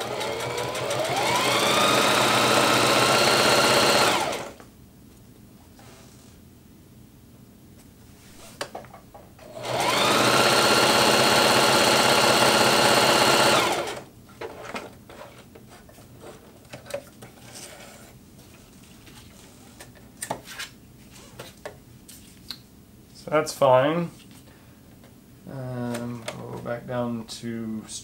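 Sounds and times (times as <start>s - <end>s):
sewing machine stitching: 0.0s - 4.6s, 9.4s - 14.1s.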